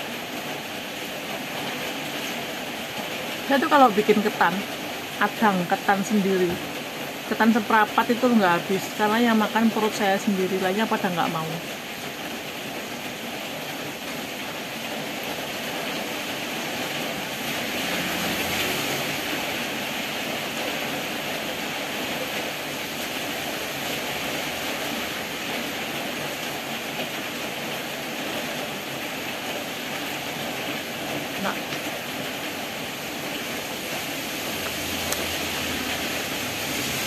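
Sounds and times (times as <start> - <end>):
steady rain: 0.0 - 37.0.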